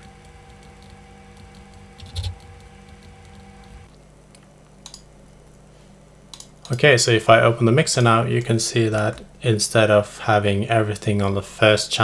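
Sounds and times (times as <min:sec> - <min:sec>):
computer mouse clicks: 0:00.0 - 0:05.1, 0:06.3 - 0:06.8
low electrical hum: 0:00.0 - 0:12.0.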